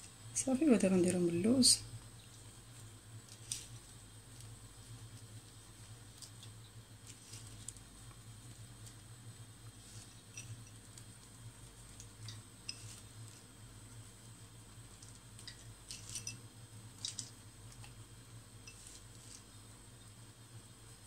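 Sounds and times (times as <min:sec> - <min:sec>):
almonds clinking on ceramic dish: 0:10.3 - 0:10.8, 0:12.2 - 0:13.1, 0:15.4 - 0:16.4, 0:18.6 - 0:19.4.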